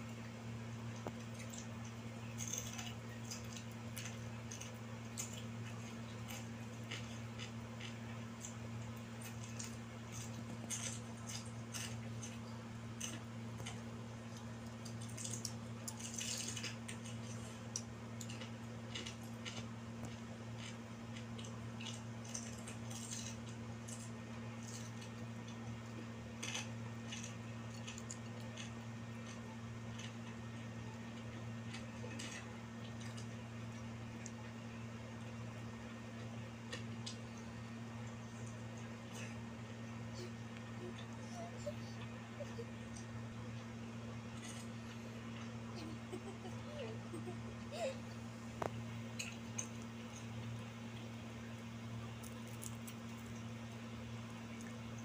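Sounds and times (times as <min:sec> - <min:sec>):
steady low hum: 0:00.0 - 0:55.0
cooked bird torn and chewed: 0:00.9 - 0:34.6, 0:48.6 - 0:55.0.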